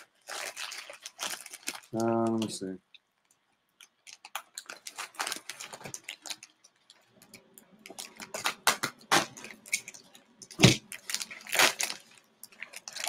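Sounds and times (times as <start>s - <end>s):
packaging crackling: 0.0s - 2.6s, 3.2s - 13.0s.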